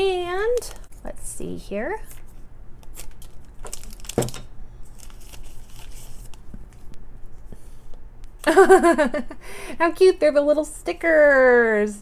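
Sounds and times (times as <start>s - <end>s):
foil crinkling: 2.8s - 6.4s.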